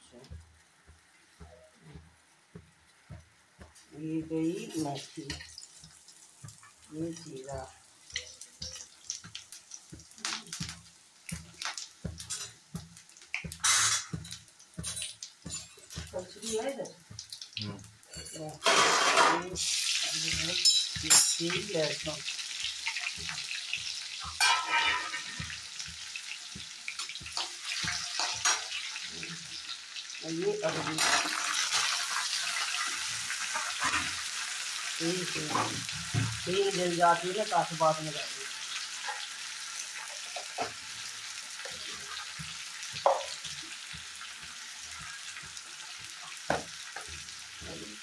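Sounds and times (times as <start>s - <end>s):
garlic sizzling in hot oil: 0.0s - 48.0s
metal spatula in pan: 2.5s - 48.0s
oil crackling pops: 8.3s - 16.0s.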